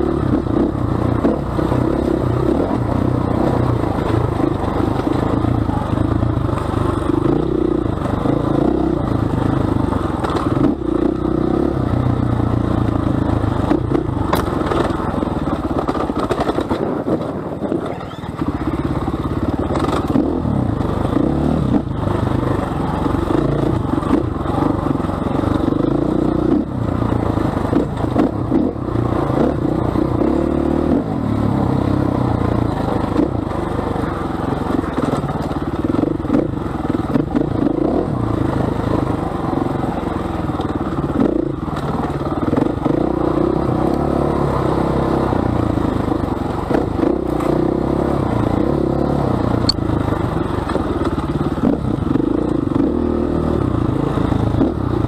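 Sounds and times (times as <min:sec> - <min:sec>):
bike rattling over rough ground: 0:00.0 - 0:55.0
motorcycle engine revving: 0:00.0 - 0:55.0.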